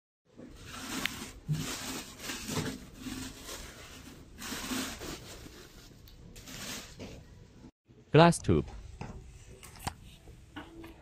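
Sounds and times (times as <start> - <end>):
packing wrap rustling: 0.6 - 7.0.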